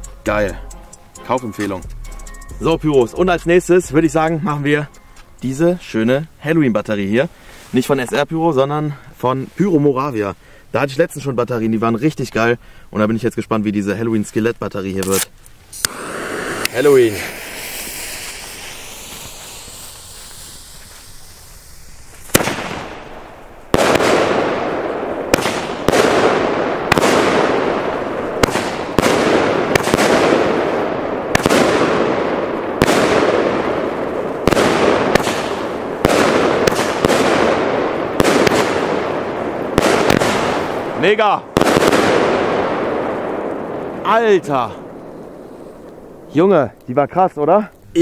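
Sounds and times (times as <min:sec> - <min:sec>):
firework battery shots crackling: 0:14.9 - 0:48.0.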